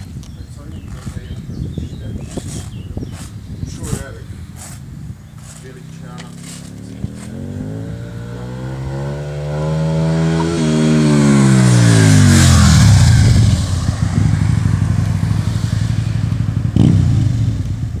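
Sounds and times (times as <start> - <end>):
motorcycle engine revving past: 6.2 - 18.0.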